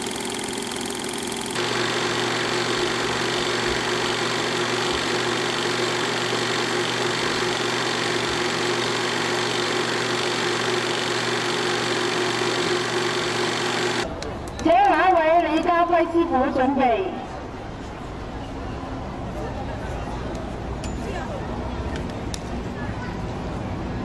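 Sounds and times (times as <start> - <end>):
film projector whir and rattle: 0.0 - 14.1.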